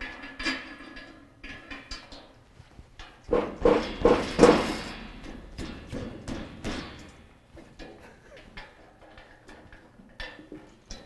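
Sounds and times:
knocks on steel frame ringing: 0:03.3 - 0:07.8.

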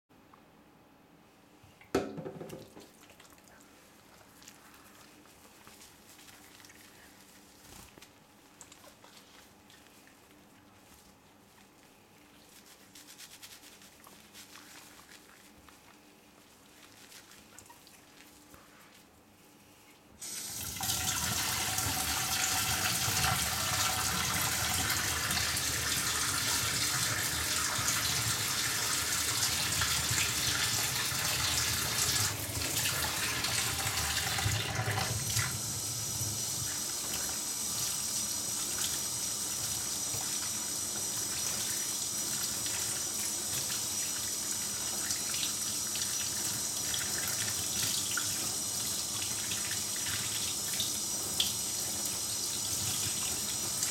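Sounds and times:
faucet running into steel sink: 0:20.2 - 0:53.9.

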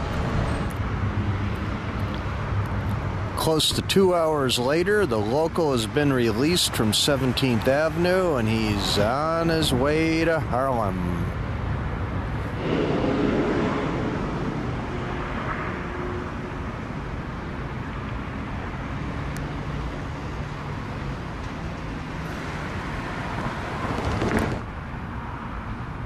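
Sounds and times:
cars driving past: 0:00.0 - 0:26.0
low hum: 0:12.2 - 0:18.1.

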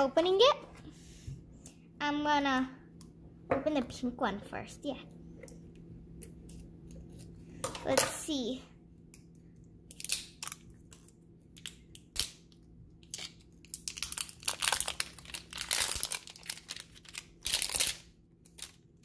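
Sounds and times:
plastic wrap crinkling and tearing: 0:09.9 - 0:19.0.

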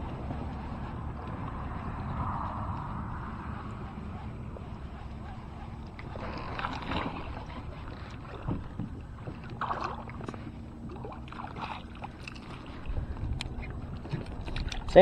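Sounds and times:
water lapping against kayak hull: 0:00.0 - 0:15.0.

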